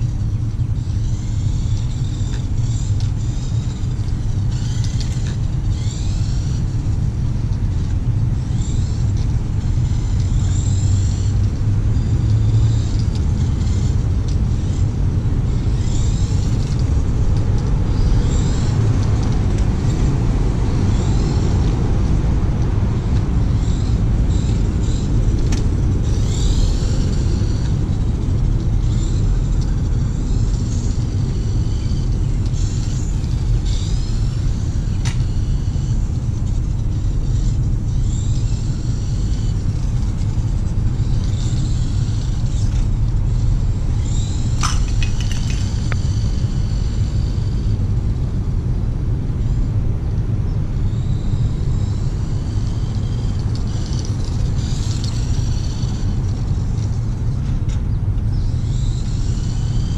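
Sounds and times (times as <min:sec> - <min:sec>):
electric motor whine: 0:00.0 - 0:59.9.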